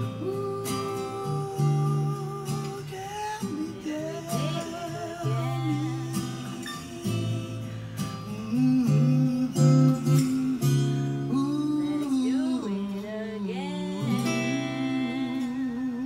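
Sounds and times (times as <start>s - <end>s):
acoustic guitar playing: 0.0s - 16.0s
man singing: 0.0s - 16.0s.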